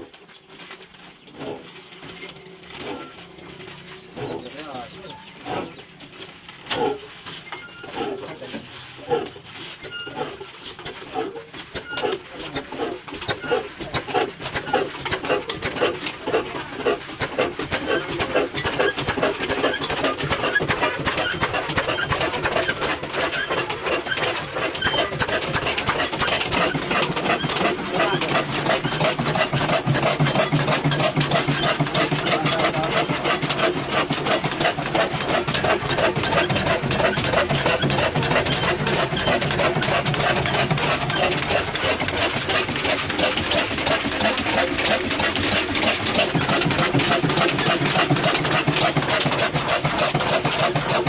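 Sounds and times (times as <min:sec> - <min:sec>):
diesel engine knocking: 0:11.8 - 0:51.0.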